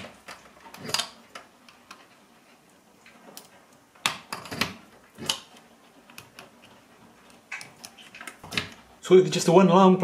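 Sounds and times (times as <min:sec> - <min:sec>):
plugs clicking and knocking: 0:03.3 - 0:08.9.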